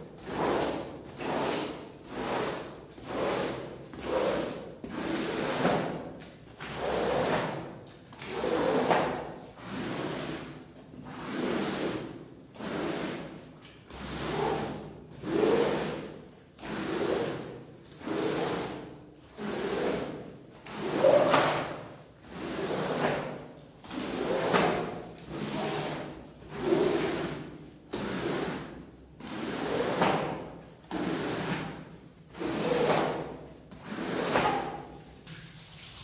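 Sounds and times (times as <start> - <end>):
rug washing swishing strokes: 0.2 - 36.0.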